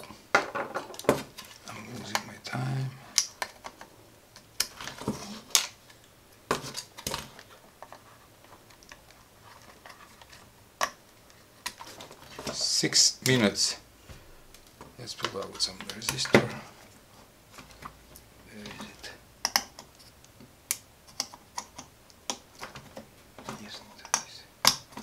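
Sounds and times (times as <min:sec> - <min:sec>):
tools clattering on a table: 0:00.4 - 0:01.5.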